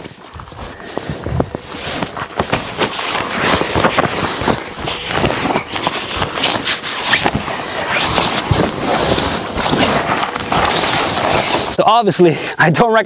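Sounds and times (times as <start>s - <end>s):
knocks and scuffs: 0.0s - 11.7s
air mattress rubbing tent fabric: 0.0s - 11.8s
fabric rustling: 0.0s - 11.9s.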